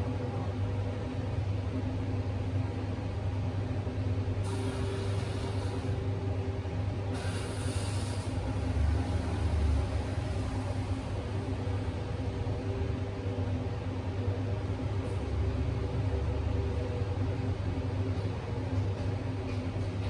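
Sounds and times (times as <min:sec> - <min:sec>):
low electric hum: 0:00.0 - 0:20.0
hiss: 0:04.4 - 0:06.0, 0:07.1 - 0:08.5.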